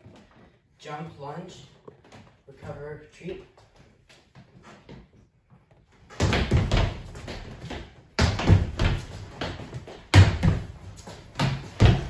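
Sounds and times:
sneakers stamping on hardwood floor: 0:06.1 - 0:12.0.

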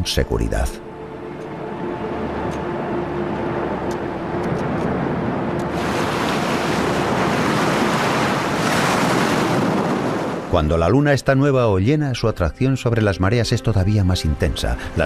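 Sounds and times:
ocean waves breaking: 0:01.5 - 0:11.0.

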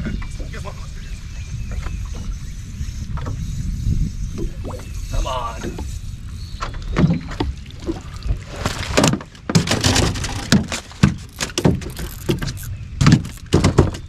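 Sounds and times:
knocks on boat deck: 0:13.0 - 0:14.0.

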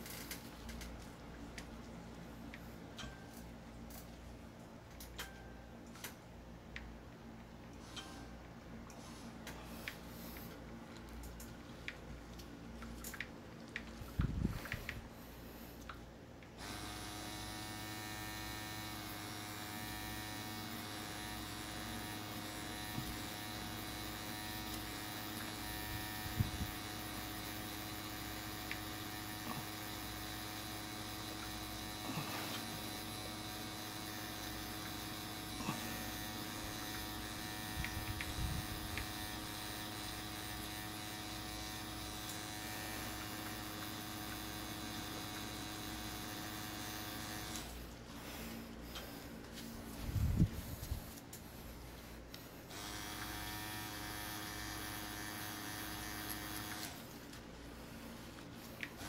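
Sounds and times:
tattoo machine humming: 0:00.0 - 0:00.8, 0:16.6 - 0:49.2, 0:52.3 - 0:57.3, 0:58.8 - 0:59.0.

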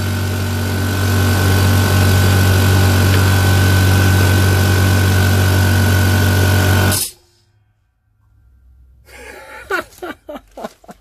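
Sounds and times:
air compressor running: 0:00.0 - 0:07.4.

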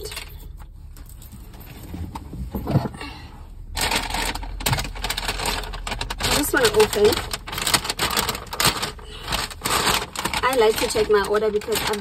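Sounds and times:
bag rustling: 0:03.7 - 0:12.0.

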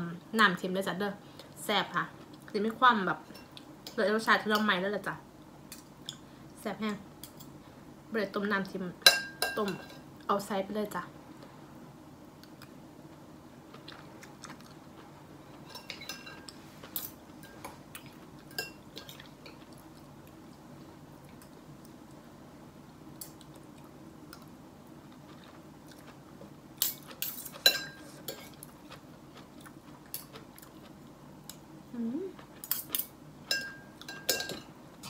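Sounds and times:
person chewing: 0:13.7 - 0:15.2, 0:23.2 - 0:31.6
spoon clinking against plate: 0:33.5 - 0:34.7.

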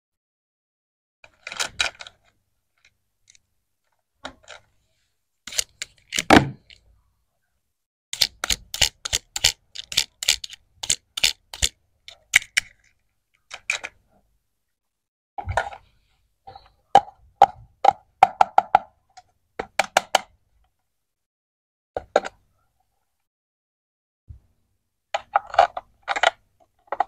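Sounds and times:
plastic toy pieces clicking: 0:08.2 - 0:14.0.

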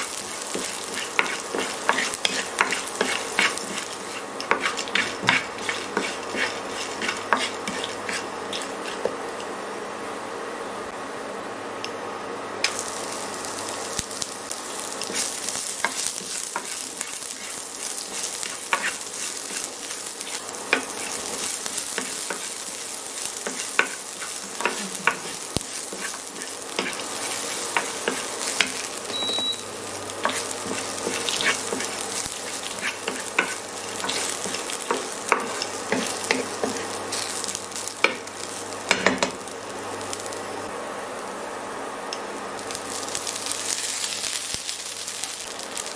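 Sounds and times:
wooden spatula stirring and scraping: 0:00.0 - 0:09.6, 0:15.0 - 0:38.2
onion sizzling in hot oil: 0:00.0 - 0:10.8, 0:12.4 - 0:45.9.

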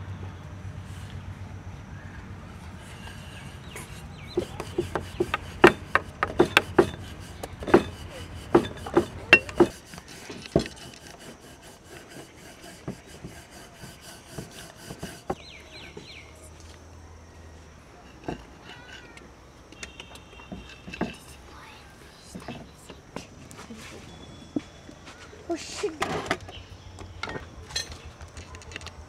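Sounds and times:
rolling pin rubbing dough: 0:02.6 - 0:16.2
rolling pin knocking on board: 0:04.3 - 0:09.9.

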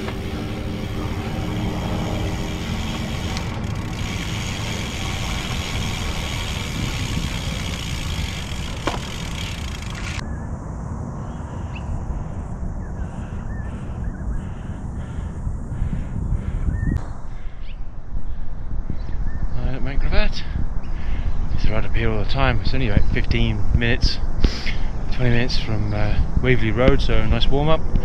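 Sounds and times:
wind rushing over microphone: 0:00.0 - 0:28.0.

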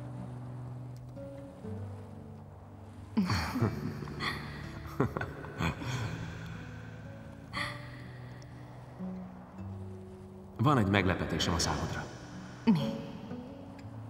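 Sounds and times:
soft background music: 0:00.0 - 0:14.0
woman laughing softly: 0:03.2 - 0:06.6.

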